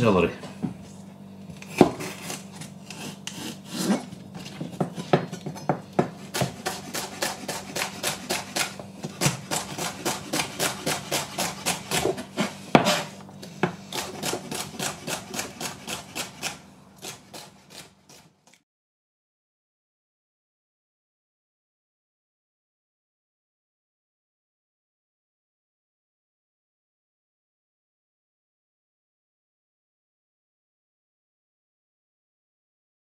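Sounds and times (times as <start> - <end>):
knife chopping on cutting board: 1.6 - 18.6.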